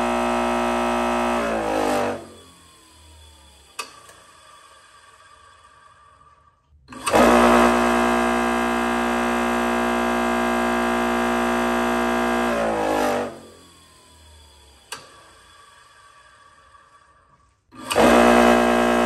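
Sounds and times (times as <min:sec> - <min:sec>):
bench grinder motor humming: 0:00.0 - 0:02.7, 0:07.0 - 0:13.8, 0:17.8 - 0:19.0.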